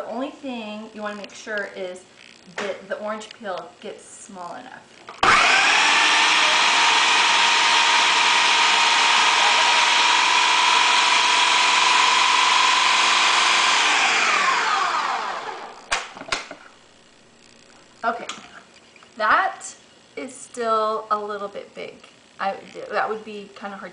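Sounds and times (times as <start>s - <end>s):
blender motor running: 5.1s - 17.3s.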